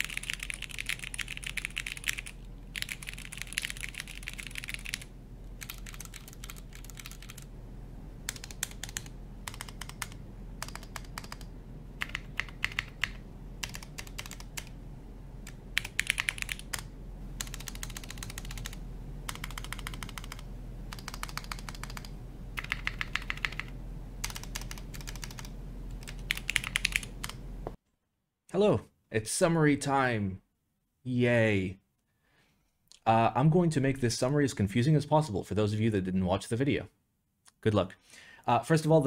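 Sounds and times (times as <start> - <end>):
mechanical keyboard typing: 0.0 - 7.5, 8.3 - 14.7, 15.4 - 27.4.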